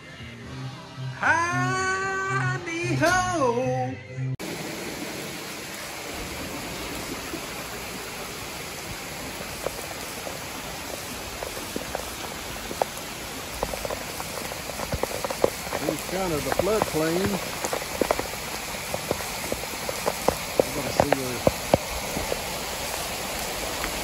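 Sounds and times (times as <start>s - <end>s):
steady rain on patio: 4.4s - 24.0s.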